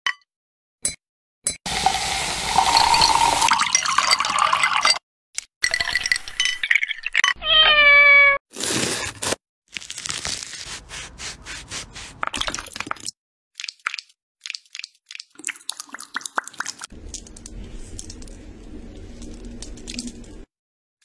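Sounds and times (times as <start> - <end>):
low steady rustle: 17.0 - 20.4.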